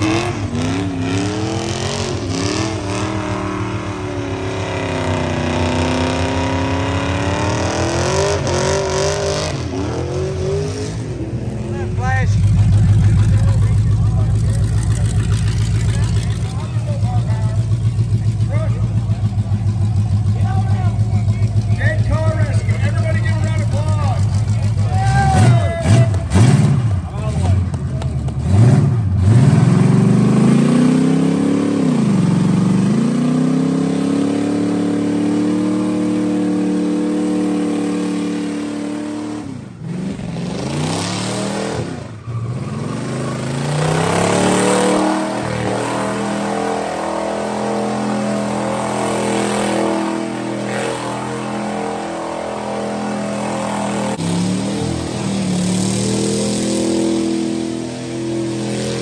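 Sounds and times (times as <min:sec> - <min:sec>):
truck engine revving hard: 0:00.0 - 0:59.0.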